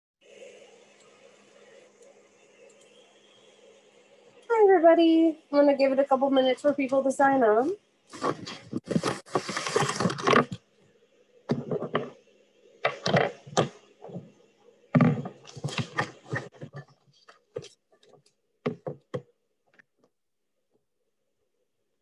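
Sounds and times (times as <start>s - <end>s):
thunks and knocks at a desk: 11.5s - 12.2s, 15.0s - 16.8s, 18.7s - 19.3s.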